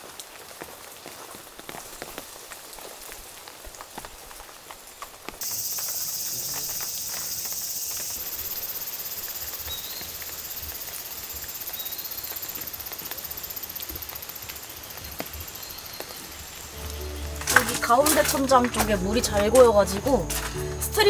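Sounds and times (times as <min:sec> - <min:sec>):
loud high-pitched insect: 0:05.4 - 0:17.1
insect chorus chirring: 0:05.4 - 0:21.0.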